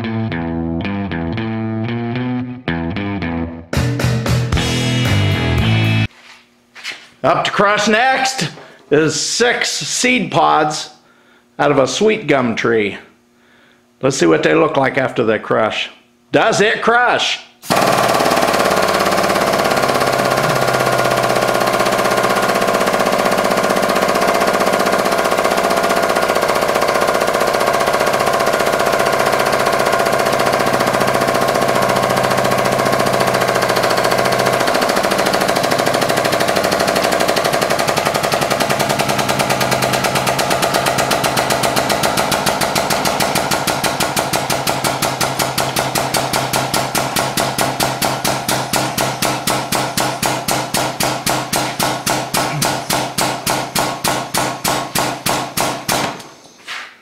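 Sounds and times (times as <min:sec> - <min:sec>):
hydraulic press running: 0:17.6 - 0:56.8.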